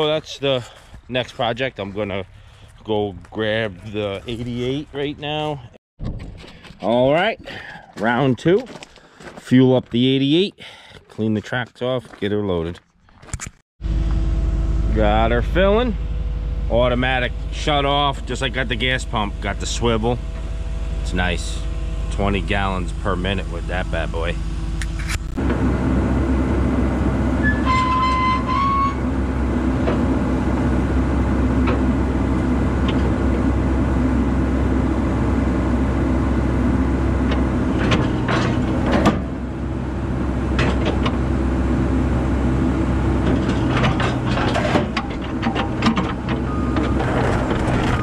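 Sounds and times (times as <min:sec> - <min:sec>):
excavator diesel engine running: 0:00.0 - 0:05.7, 0:13.8 - 0:48.0
metal clanks: 0:37.3 - 0:39.4, 0:40.6 - 0:41.2, 0:43.2 - 0:48.0.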